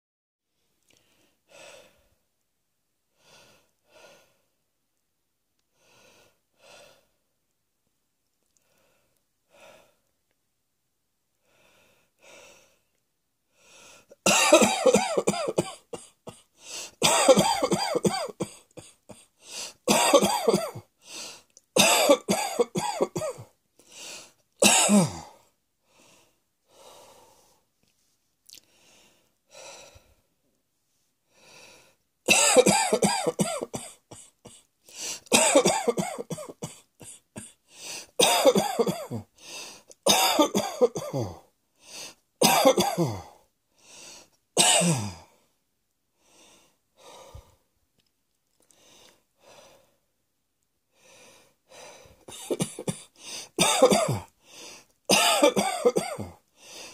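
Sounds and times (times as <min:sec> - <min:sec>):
person coughing harshly: 0:14.2 - 0:19.3, 0:19.9 - 0:20.9, 0:21.8 - 0:23.5, 0:24.6 - 0:25.4, 0:32.3 - 0:34.6, 0:35.3 - 0:37.6, 0:38.2 - 0:39.3, 0:40.1 - 0:41.4, 0:42.4 - 0:43.4, 0:44.6 - 0:45.3, 0:52.3 - 0:54.3, 0:55.1 - 0:56.4.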